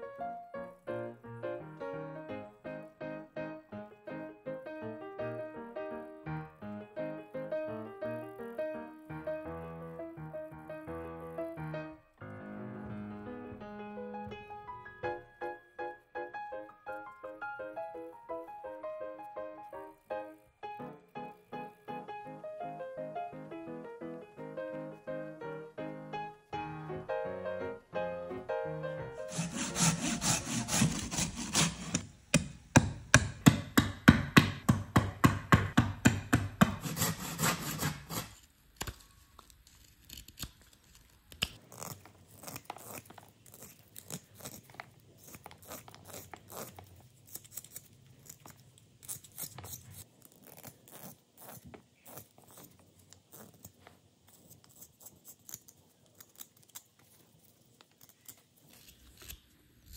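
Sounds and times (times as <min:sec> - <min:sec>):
hand saw cutting branch: 0:29.2 - 0:32.0, 0:36.7 - 0:38.4
knife whittling wood: 0:29.2 - 0:32.2, 0:36.6 - 0:52.6.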